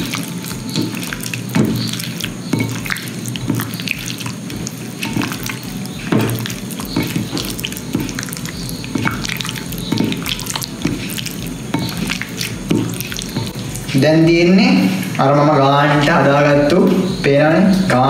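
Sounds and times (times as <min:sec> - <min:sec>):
wet squelching of kneaded meat: 0:00.0 - 0:18.0.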